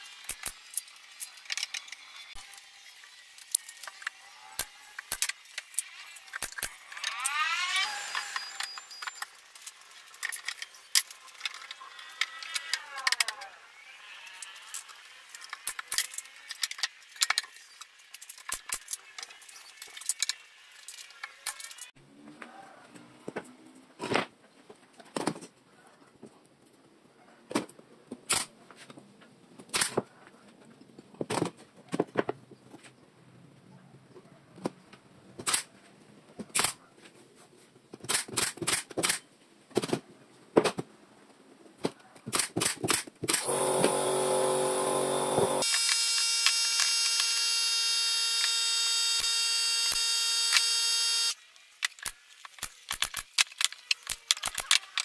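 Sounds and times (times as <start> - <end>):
steady high whine: 43.4 - 51.4.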